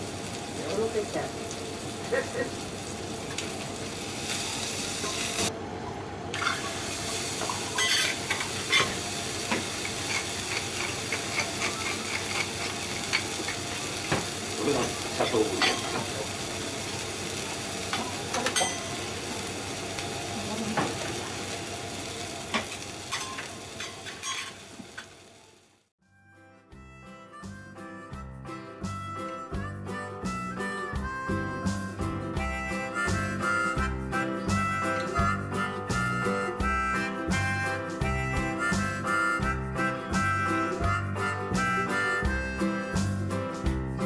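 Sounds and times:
steak sizzling on griddle: 0:00.0 - 0:05.5, 0:06.4 - 0:25.6, 0:27.4 - 0:44.0
metal spatula scraping griddle: 0:09.9 - 0:13.6, 0:23.1 - 0:24.6.

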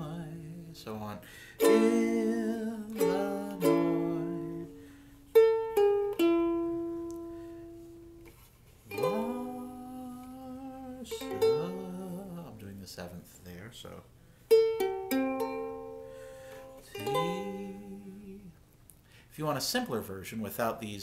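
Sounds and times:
ukulele strummed and plucked: 0:00.0 - 0:00.9, 0:01.6 - 0:12.7, 0:14.5 - 0:18.5
person singing long note: 0:01.6 - 0:04.8, 0:08.9 - 0:12.5, 0:16.9 - 0:18.5.

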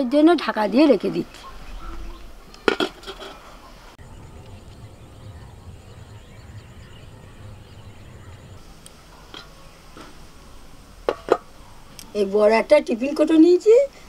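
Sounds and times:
metal pot lid clattering: 0:02.7 - 0:03.4
steady low rumble: 0:03.9 - 0:12.1.

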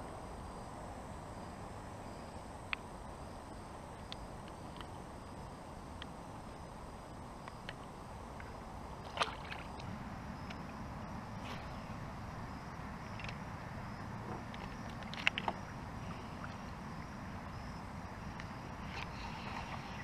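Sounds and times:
low steady rumble: 0:00.0 - 0:20.0.

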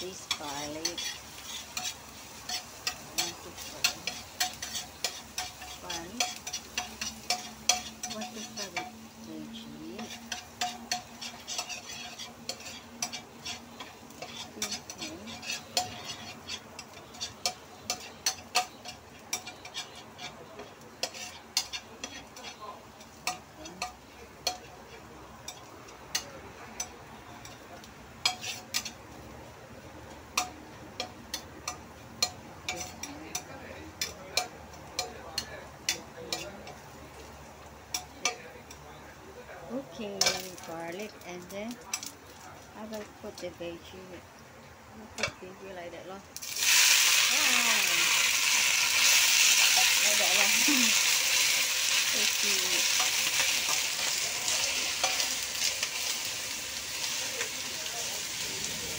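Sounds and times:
spatula scraping metal wok: 0:00.0 - 0:26.3, 0:28.2 - 0:29.2, 0:32.2 - 0:35.1, 0:46.4 - 0:58.9
garlic sizzling: 0:00.0 - 0:38.8, 0:39.7 - 0:44.2, 0:45.0 - 0:58.9
spatula clicking on metal: 0:00.3 - 0:08.9, 0:10.0 - 0:20.0.

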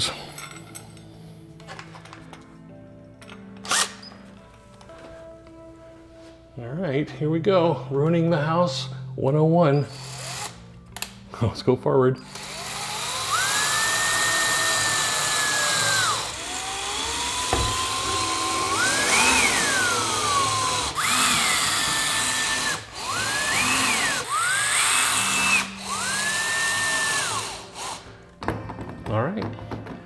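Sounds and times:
cordless drill motor whine: 0:12.3 - 0:28.0.

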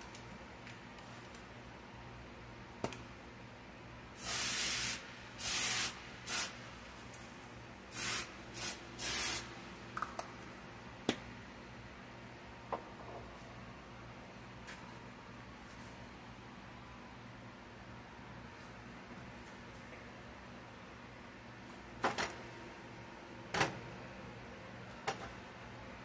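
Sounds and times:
aerosol spray hissing: 0:04.2 - 0:06.6, 0:07.9 - 0:09.5.

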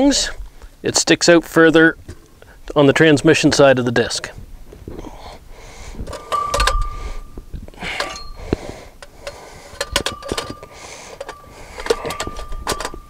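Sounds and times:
metal parts clinking and knocking: 0:06.1 - 0:07.2, 0:07.8 - 0:13.0
short metallic ringing tone: 0:06.2 - 0:07.4.

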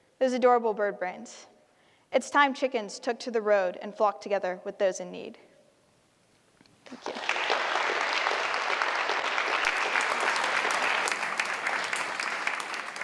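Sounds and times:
audience applauding: 0:06.9 - 0:13.0.

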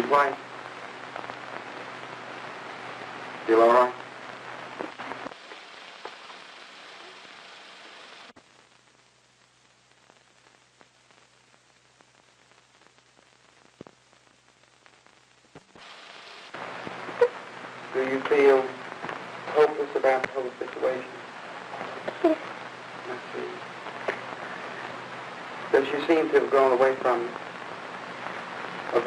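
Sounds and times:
old film soundtrack hiss and crackle: 0:00.0 - 0:29.0
faint pops: 0:04.6 - 0:07.2, 0:08.3 - 0:20.9, 0:21.7 - 0:25.6.

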